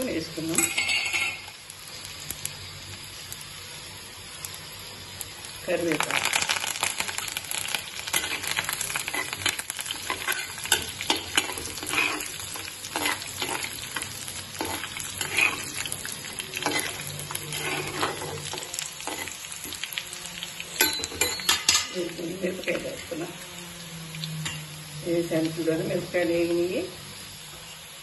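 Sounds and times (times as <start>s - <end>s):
spices sizzling and crackling in oil: 0.0s - 28.0s
spatula scraping a clay pot: 14.6s - 15.9s, 16.6s - 18.5s.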